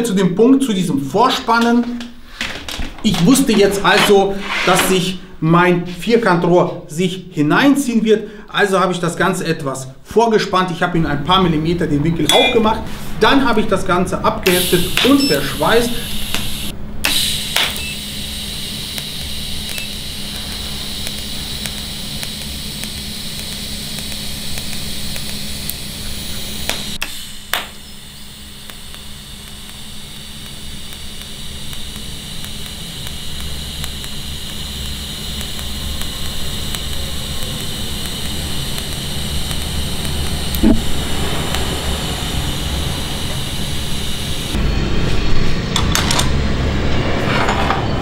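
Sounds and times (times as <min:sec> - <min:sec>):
welding arc hissing: 0:14.4 - 0:44.6.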